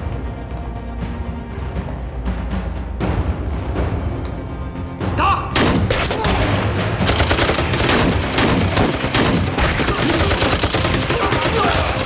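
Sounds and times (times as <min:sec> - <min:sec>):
rifles and pistols firing: 0:05.6 - 0:12.0.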